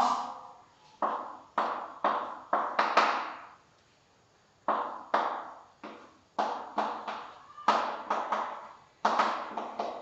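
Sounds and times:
chalk striking a blackboard: 1.0 - 3.5, 4.6 - 10.0.

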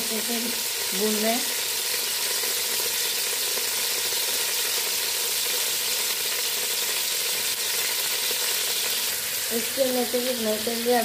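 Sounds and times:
chicken sizzling in oil: 0.0 - 11.0.

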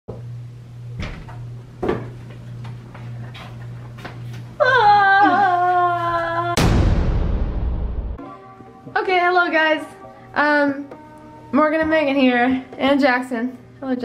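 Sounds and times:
loud hit: 6.6 - 8.2
music: 8.1 - 14.0.

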